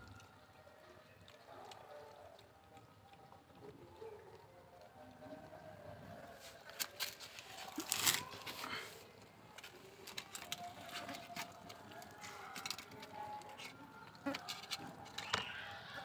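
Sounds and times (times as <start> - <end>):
kittens chewing and licking: 0.0 - 15.8
noisy scuffle: 6.2 - 15.4.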